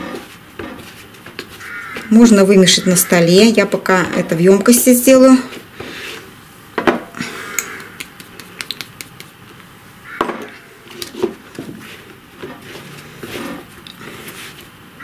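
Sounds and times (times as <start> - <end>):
dough kneading rustles and knocks: 0.0 - 2.5, 10.9 - 15.0.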